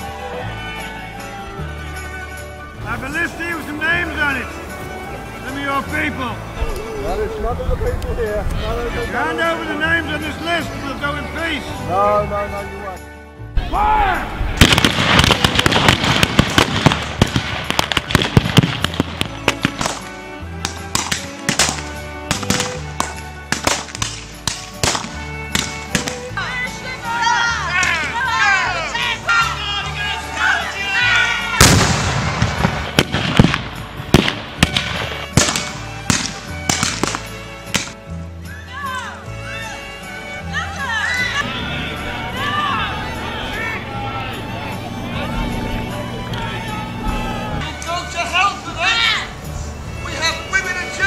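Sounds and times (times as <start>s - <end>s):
music playing: 0.0s - 51.0s
pyrotechnic explosions: 14.2s - 19.8s, 31.6s - 37.0s
volley of blank gunshots: 14.6s - 20.0s, 31.6s - 37.9s.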